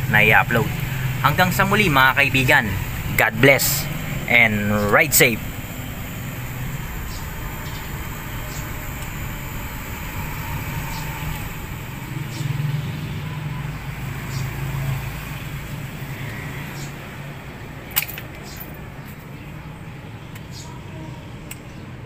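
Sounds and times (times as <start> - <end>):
motorcycle engine idling: 0.0 - 17.0
electric fans running: 0.0 - 22.0.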